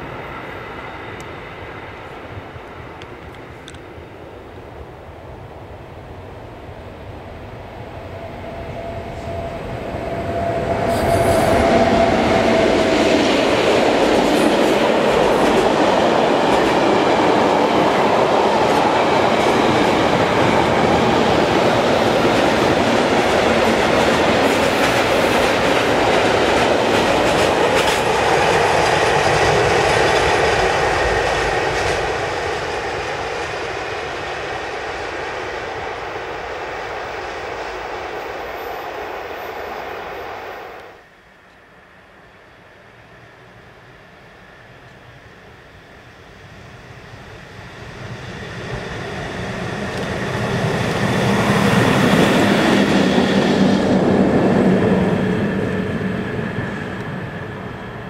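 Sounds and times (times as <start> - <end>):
freight train wheels clattering on rails: 9.3 - 35.1.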